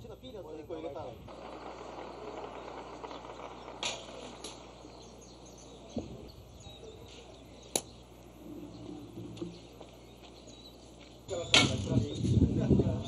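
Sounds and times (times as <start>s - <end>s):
faint bird chirps: 1.4s - 12.4s
sharp click: 7.7s - 8.0s.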